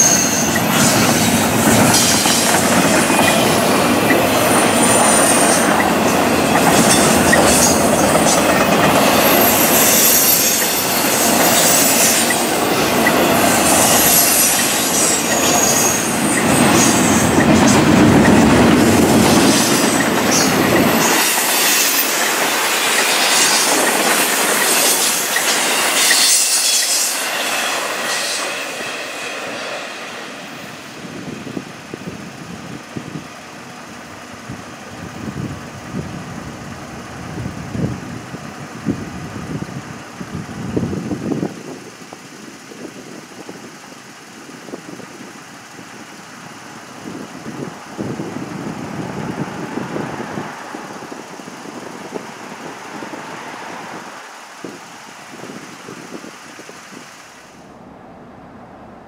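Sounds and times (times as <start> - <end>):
high thin wheel squeals: 0.0 - 29.9
train wheels rumbling on rail: 0.0 - 59.0.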